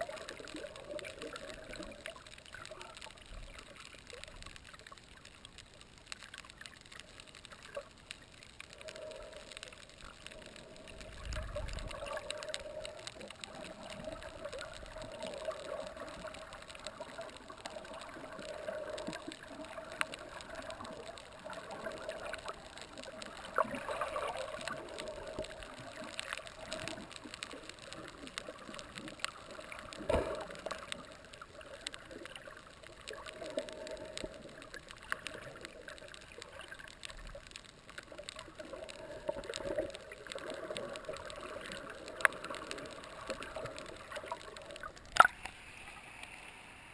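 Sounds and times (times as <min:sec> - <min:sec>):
sharp clicks and crackles: 0:00.0 - 0:46.9
underwater water noise: 0:00.0 - 0:46.9.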